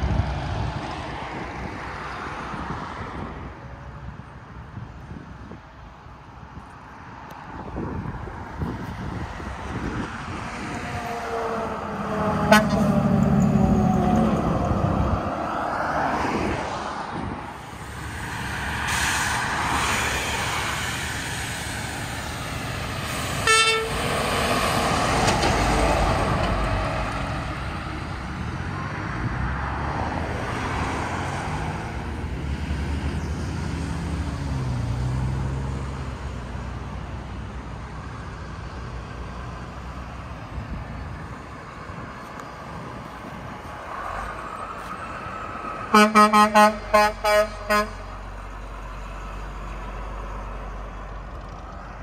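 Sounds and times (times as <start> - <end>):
traffic passing on highway: 0.0 - 52.0
short horn toot: 12.5 - 13.0, 23.5 - 24.0, 45.9 - 48.1.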